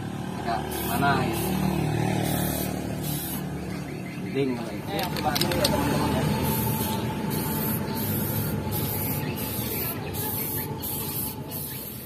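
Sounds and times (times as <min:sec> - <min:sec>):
spray paint can hissing: 0:00.7 - 0:03.6, 0:05.0 - 0:12.0.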